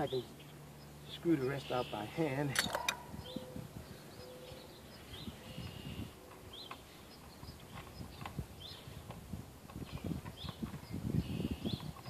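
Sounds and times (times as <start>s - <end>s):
faint bird chirps: 0.0s - 9.0s.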